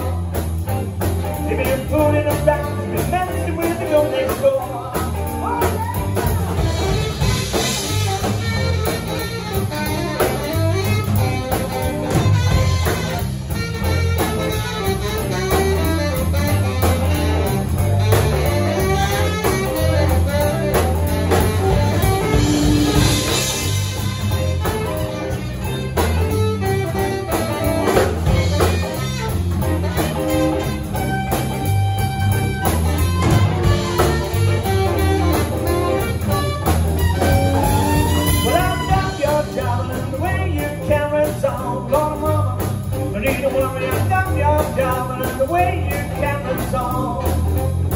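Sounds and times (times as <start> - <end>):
drum kit: 0.0 - 47.9
electric guitar: 0.0 - 47.9
saxophone: 0.0 - 47.9.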